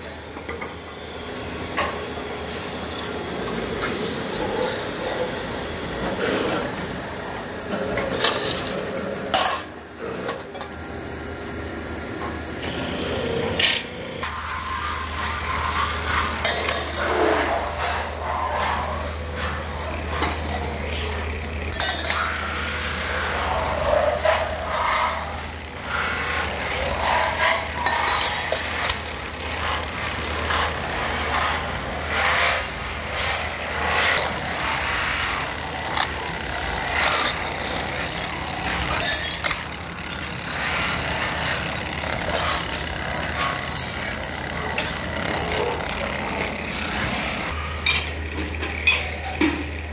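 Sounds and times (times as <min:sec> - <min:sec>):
lathe motor humming: 0:10.7 - 0:49.9
steel tumblers clinking: 0:20.1 - 0:22.3, 0:36.9 - 0:40.4.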